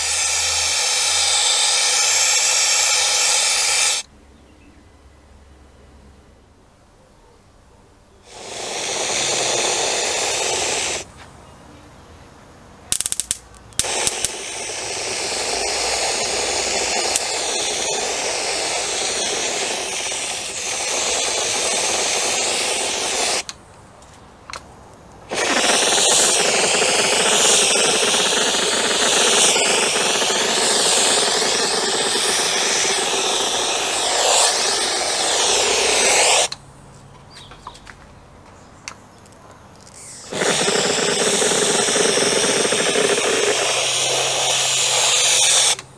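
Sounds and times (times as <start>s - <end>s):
powder coating gun spraying: 0.0s - 4.0s, 8.3s - 11.1s, 12.9s - 23.5s, 25.3s - 36.6s, 40.0s - 45.9s
sharp clicks: 12.9s - 18.0s, 25.3s - 36.6s.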